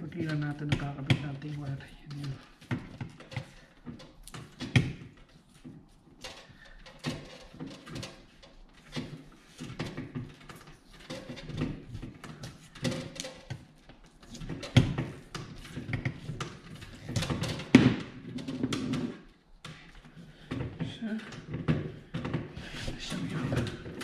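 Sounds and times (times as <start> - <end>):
hands handling cable and bracket: 2.0 - 23.0.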